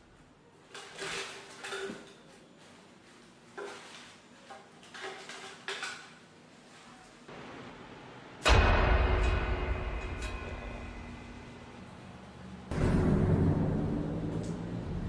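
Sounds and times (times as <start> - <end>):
objects clattering on hard floor: 0.6 - 2.8, 3.5 - 6.2.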